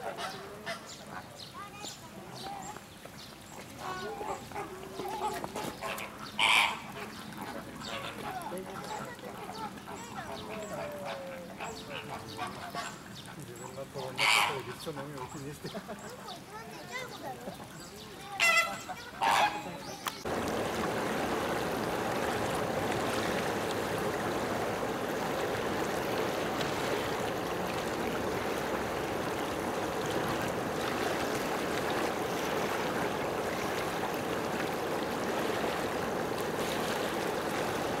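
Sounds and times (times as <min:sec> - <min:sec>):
water rushing: 0:00.0 - 0:38.0
flamingo honking call: 0:03.9 - 0:07.1, 0:14.2 - 0:14.8, 0:18.4 - 0:19.9.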